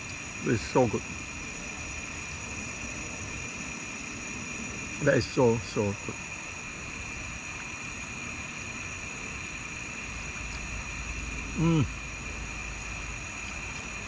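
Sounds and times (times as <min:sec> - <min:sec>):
background hiss: 0:00.0 - 0:14.0
man humming: 0:11.6 - 0:12.0.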